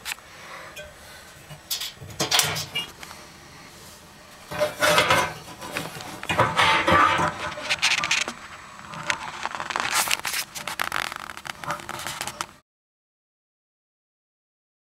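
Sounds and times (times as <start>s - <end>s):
tool scraping and clinking on metal: 1.5s - 3.0s, 4.5s - 8.3s.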